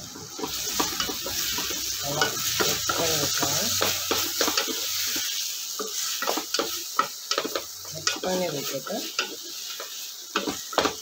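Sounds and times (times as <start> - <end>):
masala sizzling in a pot: 0.0 - 11.0.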